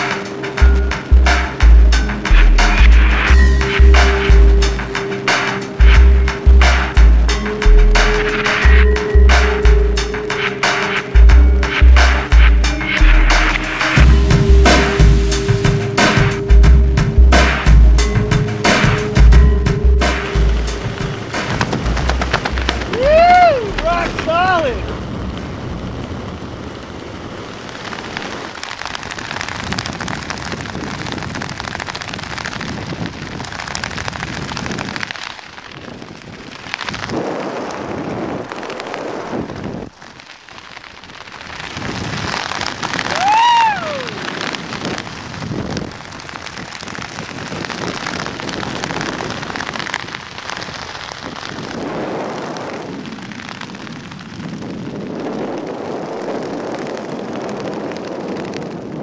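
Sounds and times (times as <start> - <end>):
wind rushing over microphone: 18.2 - 59.0
person yelling: 22.9 - 24.9, 43.1 - 44.2.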